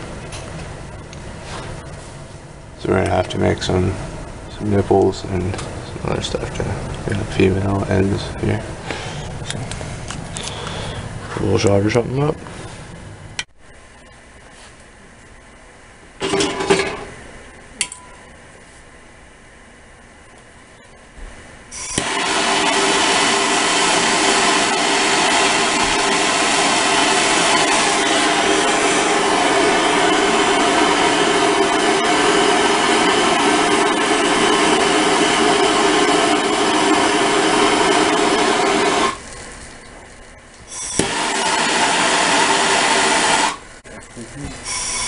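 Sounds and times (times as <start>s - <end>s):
torch ignition click: 21.8s - 39.2s, 40.8s - 43.6s
torch flame hissing: 21.8s - 39.3s, 40.7s - 43.7s, 44.6s - 45.0s.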